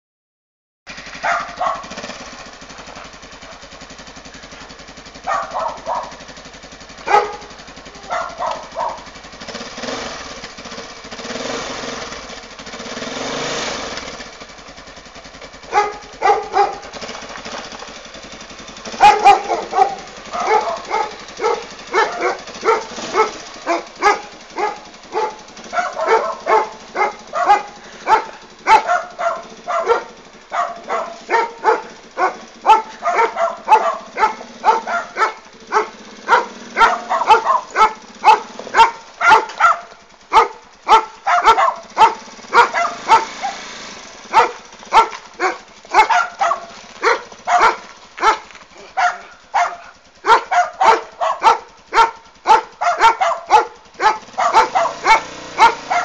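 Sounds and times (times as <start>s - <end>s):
quad bike engine running: 0.9s - 56.0s
dog barking: 1.2s - 2.0s, 2.9s - 3.6s, 5.2s - 6.3s, 7.0s - 9.2s, 15.6s - 17.0s, 18.8s - 43.6s, 44.2s - 56.0s.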